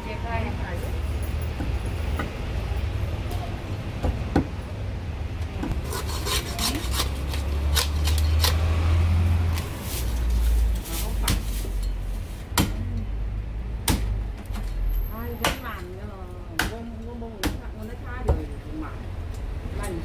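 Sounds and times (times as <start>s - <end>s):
knife scraping through meat and bone: 5.8s - 8.7s.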